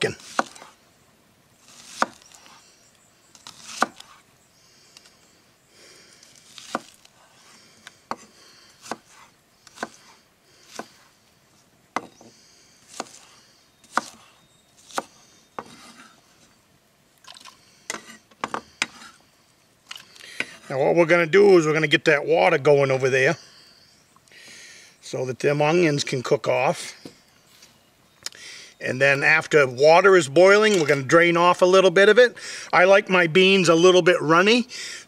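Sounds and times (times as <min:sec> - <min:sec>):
knife chopping on wooden board: 0:00.2 - 0:00.7, 0:01.8 - 0:02.2, 0:03.5 - 0:04.2, 0:06.6 - 0:07.0, 0:08.1 - 0:10.1, 0:10.7 - 0:11.0, 0:12.0 - 0:12.3, 0:12.9 - 0:13.2, 0:13.9 - 0:16.1
onion crunching: 0:06.2 - 0:07.1.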